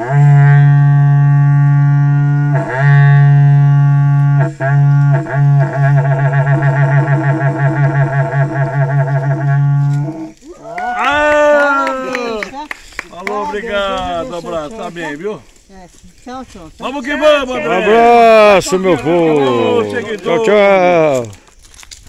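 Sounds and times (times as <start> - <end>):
cattle horn trumpet notes: 0.0 - 10.4.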